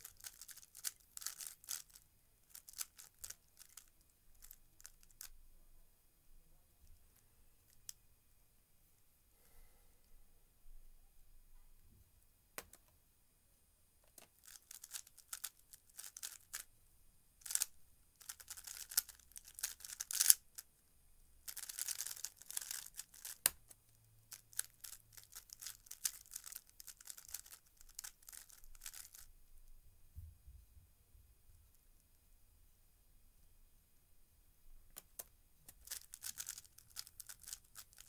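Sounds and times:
puzzle cube clicking turns: 0.0s - 5.3s, 14.1s - 16.7s, 17.4s - 20.6s, 21.5s - 29.3s, 34.9s - 38.0s.

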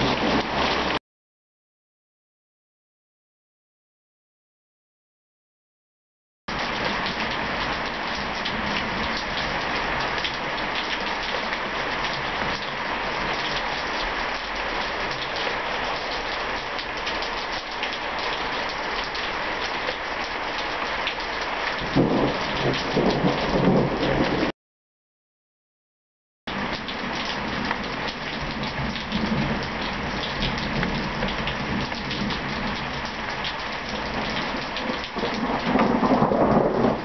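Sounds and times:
steady rain falling: 0.0s - 1.0s, 6.5s - 24.5s, 26.5s - 37.0s
thunder rumbling: 0.0s - 1.0s, 21.8s - 24.5s, 34.1s - 37.0s.

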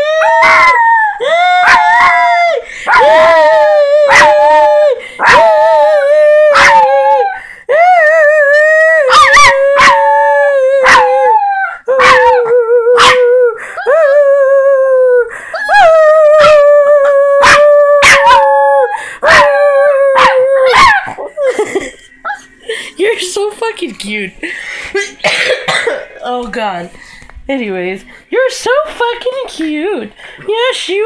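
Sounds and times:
small dog howling: 0.0s - 7.4s, 8.4s - 14.2s, 15.6s - 21.1s.

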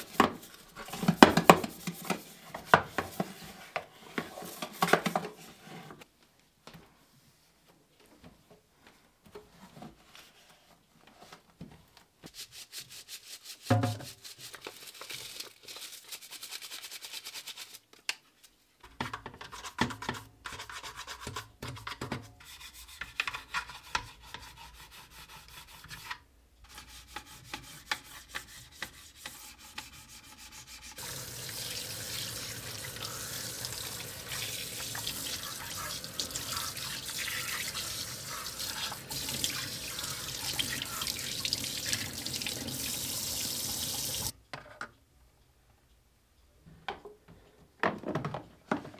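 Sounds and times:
faucet water splashing into sink: 31.0s - 44.3s.

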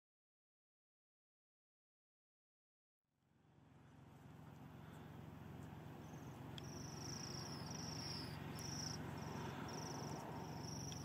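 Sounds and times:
low background rumble: 3.2s - 11.0s
birds calling in high trills: 4.7s - 11.0s.

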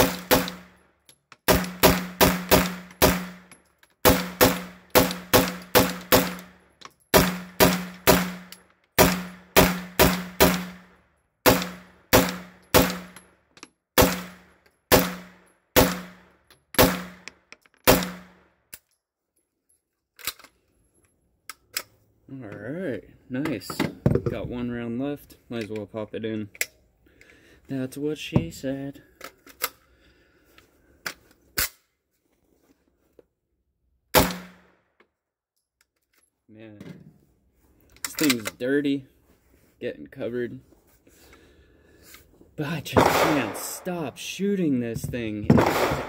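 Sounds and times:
pistol shots ringing: 42.9s - 44.0s, 45.5s - 46.0s.

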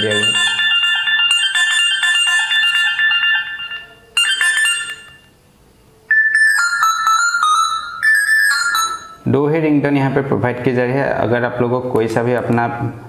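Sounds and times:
phone ringtones through tinny speaker: 0.0s - 5.4s, 6.1s - 9.3s.

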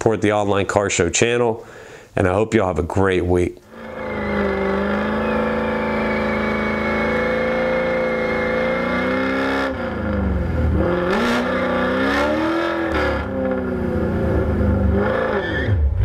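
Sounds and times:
car engine revving high: 3.7s - 16.0s
tyres spinning: 3.8s - 7.6s.

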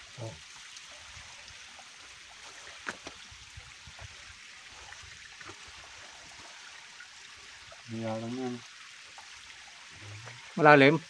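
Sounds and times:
stream water running: 0.0s - 11.0s.

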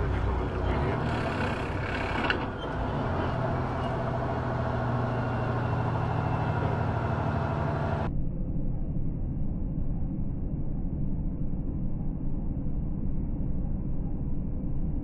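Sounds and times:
road noise: 0.0s - 8.1s
truck engine running: 0.0s - 8.1s.

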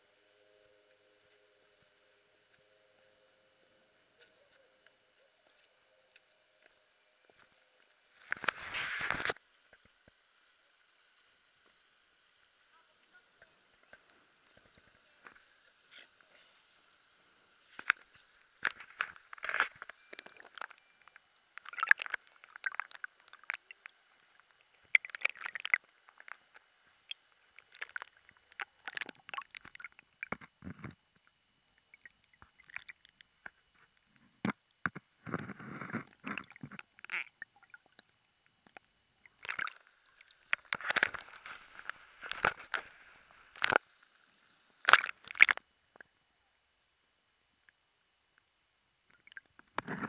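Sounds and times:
water sloshing and gurgling: 17.8s - 33.6s, 34.4s - 43.8s, 44.8s - 45.6s.

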